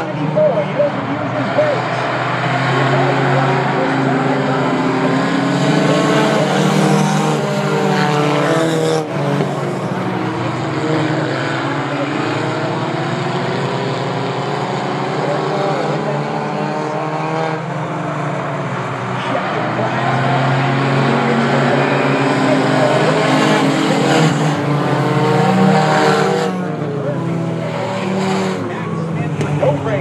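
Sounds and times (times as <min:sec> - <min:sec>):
race car engines passing: 0:00.0 - 0:30.0.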